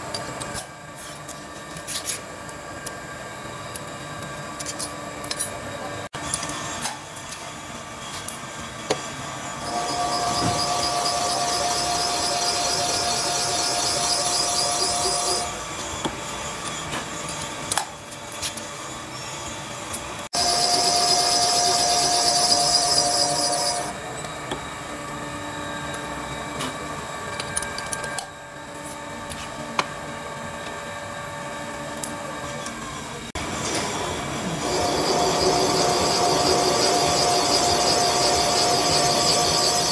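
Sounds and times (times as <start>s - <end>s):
valve seat cutter whining: 8.9s - 16.6s, 19.1s - 24.6s, 32.6s - 39.9s
machine hum: 9.5s - 15.8s, 20.3s - 29.3s, 30.0s - 39.9s.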